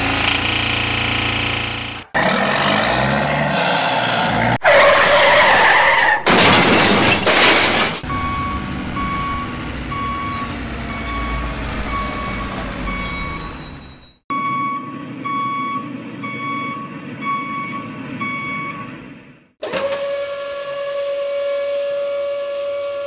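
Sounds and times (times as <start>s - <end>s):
truck reversing alarm beeps: 8.0s - 19.1s.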